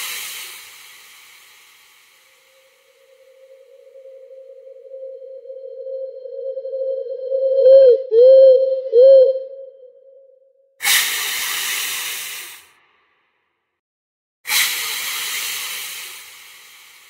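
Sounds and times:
loud hissing bursts: 0.0 - 3.4, 10.8 - 12.8, 14.5 - 17.0
steady electronic tone: 3.1 - 9.1.

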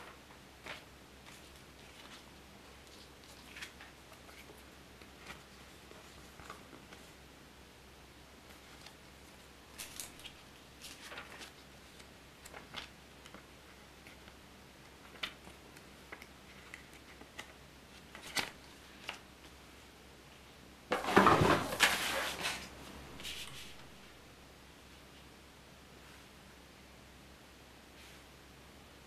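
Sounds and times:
paper pages rustling: 0.0 - 7.2, 8.4 - 14.4, 15.0 - 19.6, 20.9 - 24.0.

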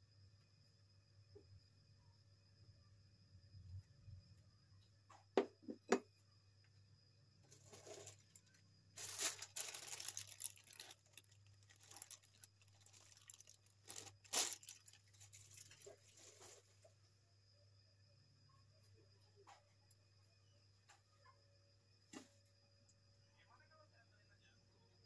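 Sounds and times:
packaging rustling and crinkling: 7.5 - 16.6.

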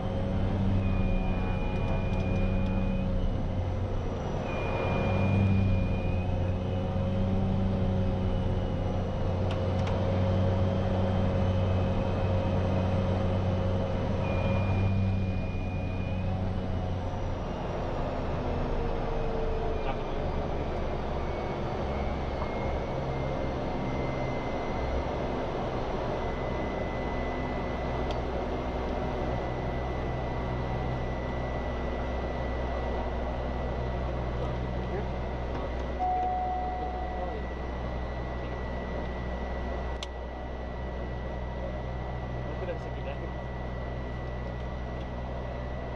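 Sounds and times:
turboprop engine drone: 0.0 - 45.9
high turbine whine: 19.0 - 45.9.

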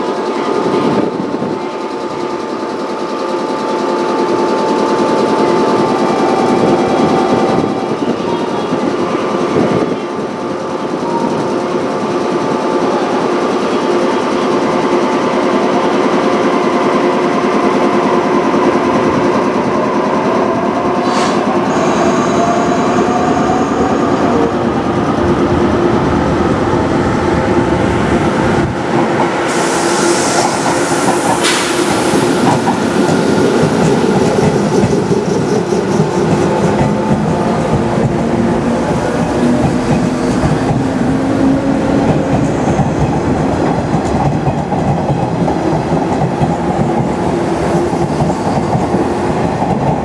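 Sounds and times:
train equipment hum: 0.0 - 50.0
train wheels clicking over rail joints: 27.9 - 50.0
air hiss: 29.4 - 32.6.

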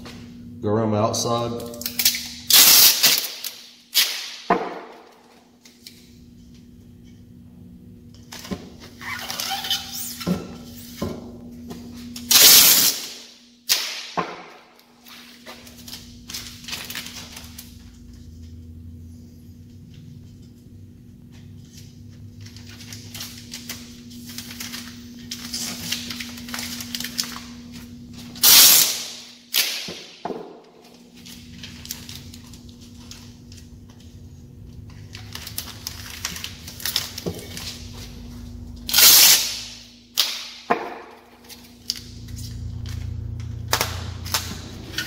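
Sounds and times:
steady low hum: 0.0 - 45.0
tape ripping: 1.7 - 4.5, 8.3 - 10.9, 12.1 - 14.2, 15.0 - 17.9, 22.5 - 30.2, 35.0 - 38.2, 38.8 - 40.7.

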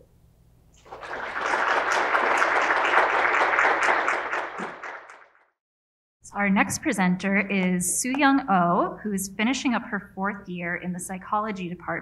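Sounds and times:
audience applauding: 0.8 - 5.4.

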